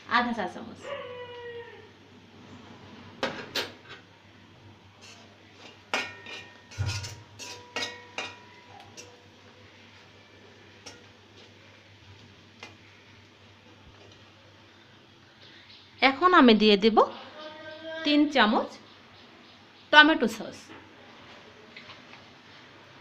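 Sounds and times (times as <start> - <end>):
spatula scraping metal pan: 5.0 - 9.1.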